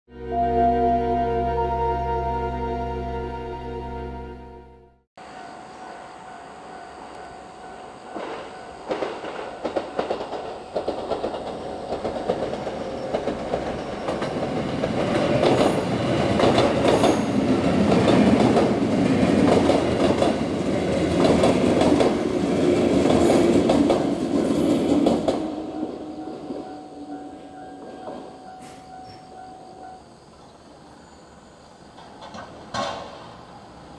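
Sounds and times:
electric train passing: 0.1s - 33.9s
wheels clicking over rail joints: 8.1s - 25.6s, 27.5s - 29.5s.

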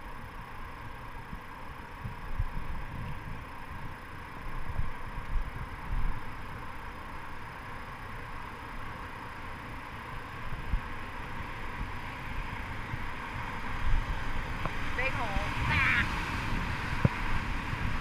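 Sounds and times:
wind buffeting microphone: 10.5s - 18.0s.

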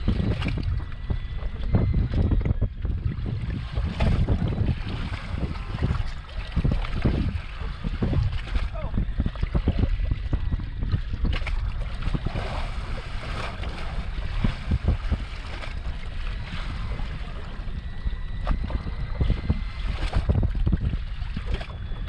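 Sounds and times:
low thumps: 0.0s - 17.1s
water lapping against hull: 0.0s - 22.0s
wind buffeting microphone: 0.0s - 22.0s.

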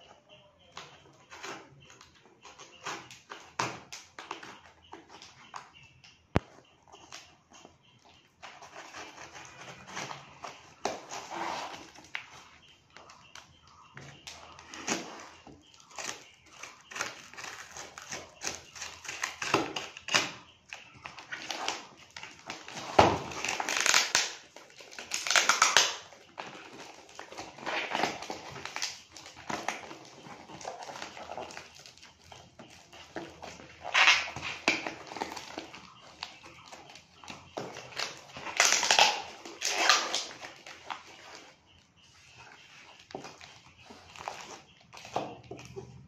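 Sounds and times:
cardboard scraping: 8.5s - 12.4s
packing tape ripping: 22.6s - 26.2s, 37.7s - 40.9s.

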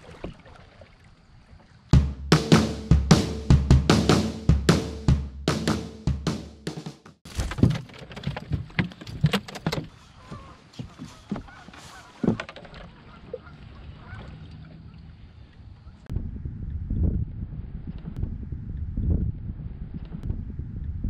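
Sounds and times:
wind and water rushing: 0.0s - 2.0s, 8.6s - 15.8s
knocks and clatter in a boat: 7.1s - 15.1s, 17.8s - 19.3s, 20.0s - 21.0s.

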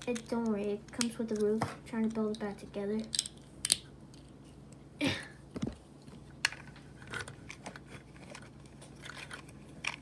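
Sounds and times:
plastic bricks clicking: 3.0s - 3.9s.

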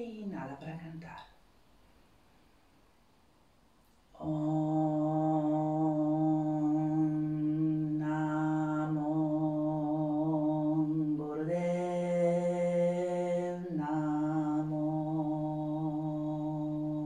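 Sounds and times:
woman chanting on a held note: 4.2s - 17.0s.

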